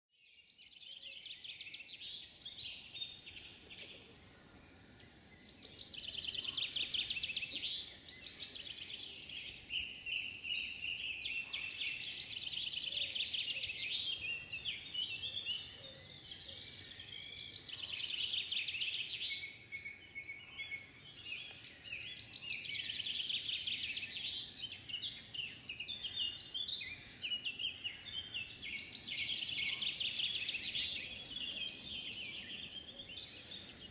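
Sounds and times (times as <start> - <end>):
songbirds singing: 0.1 - 33.9.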